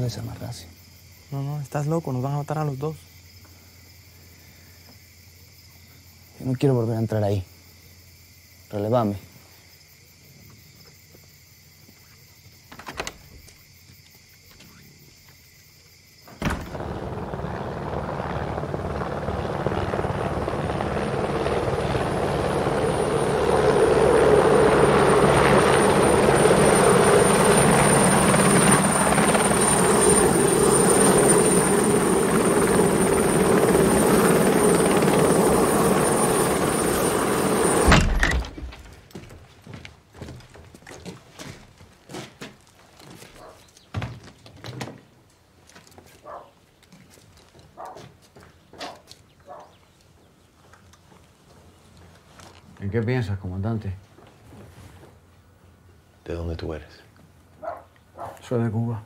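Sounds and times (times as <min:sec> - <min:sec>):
helicopter rotor and engine: 0:16.3 - 0:38.5.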